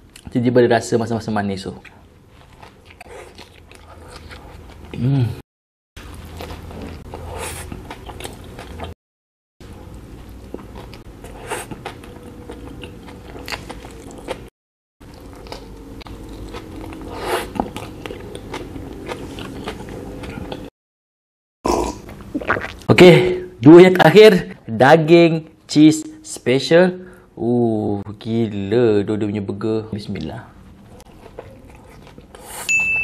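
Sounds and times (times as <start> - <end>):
chewing with wet mouth smacks: 10.4 - 20.7, 31.0 - 32.6.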